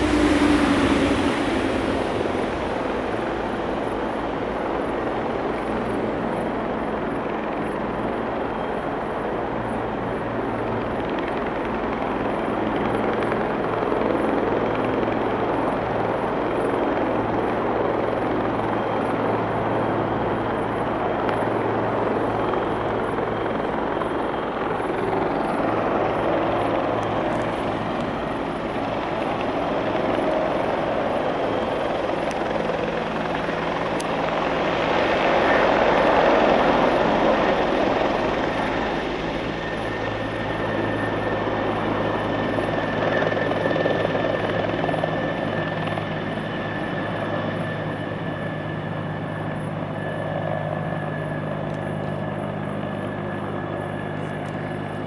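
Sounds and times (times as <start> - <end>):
low hum: 0.0 - 5.6
helicopter rotor and turbine drone: 0.0 - 55.0.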